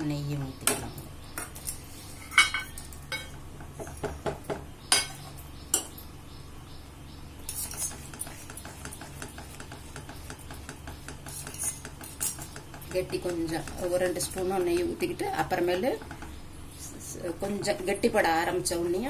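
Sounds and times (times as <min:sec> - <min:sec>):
spatula stirring and scraping paste: 0:07.5 - 0:18.2.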